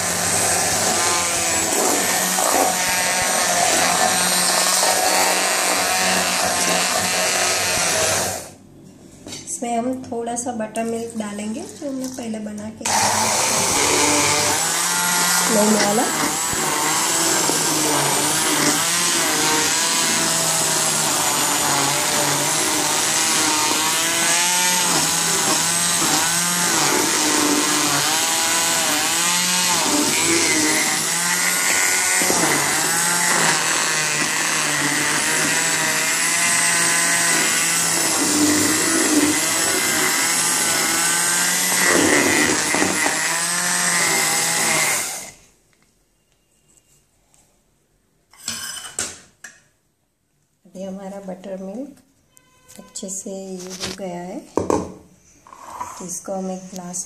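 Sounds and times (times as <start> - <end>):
electric hand blender running: 0.0 - 8.6, 12.8 - 45.4.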